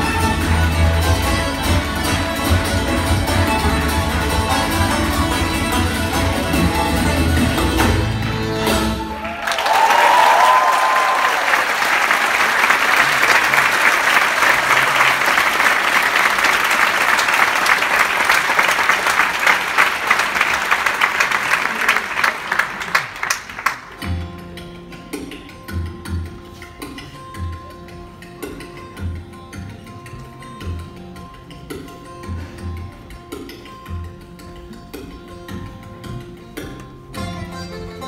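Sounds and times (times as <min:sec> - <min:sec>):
folk band with banjo and fiddle: 0:00.0 - 0:09.2, 0:24.0 - 0:38.0
audience applause: 0:09.1 - 0:24.0.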